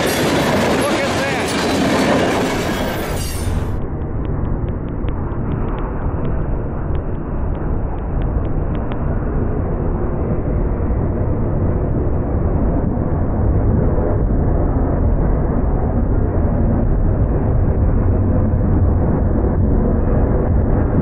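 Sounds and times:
freight train rumbling past: 0.0 - 10.3
wind buffeting microphone: 0.0 - 21.0.

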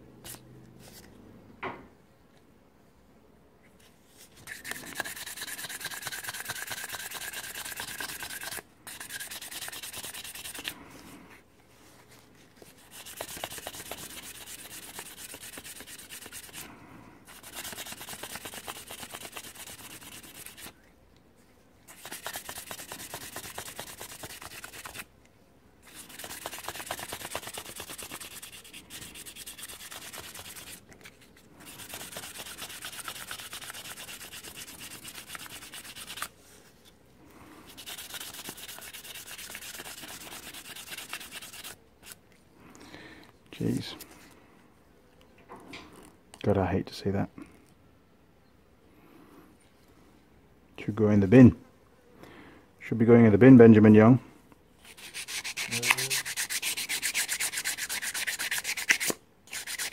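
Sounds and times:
sandpaper rubbing by hand: 4.4 - 10.8, 12.7 - 20.8, 21.9 - 25.1, 25.8 - 36.3, 37.7 - 42.2, 54.8 - 59.9.

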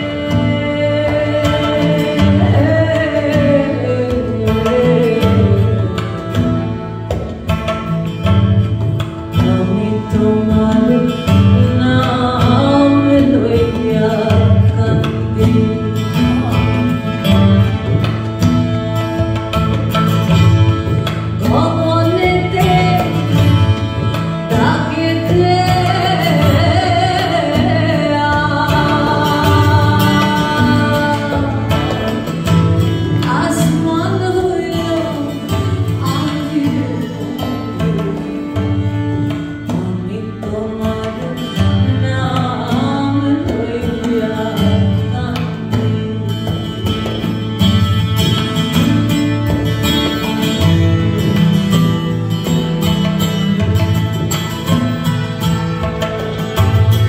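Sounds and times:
woman singing: 0.0 - 7.0, 9.3 - 18.0, 21.3 - 47.6
acoustic guitar: 0.0 - 57.0
tabla: 0.0 - 57.0
violin: 0.0 - 57.0
double bass: 1.1 - 33.3.

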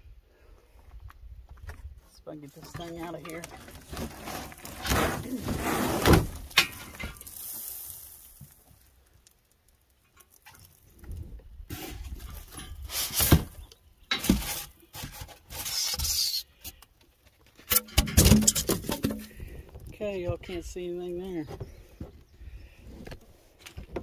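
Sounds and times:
cardboard scraping and rustling: 2.6 - 7.0, 11.7 - 13.6, 14.2 - 16.1.

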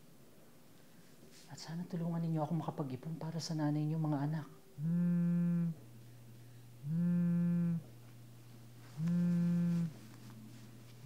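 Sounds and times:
low steady hum: 0.0 - 11.0
mobile phone vibrating: 4.8 - 5.8, 6.8 - 8.0, 8.9 - 10.0.

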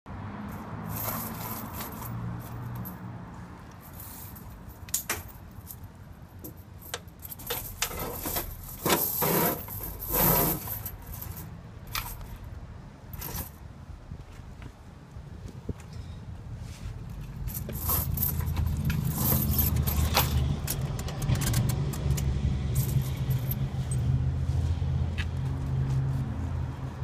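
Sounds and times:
tire chains rattling and clinking: 0.5 - 12.5, 13.1 - 13.7, 17.2 - 24.2.

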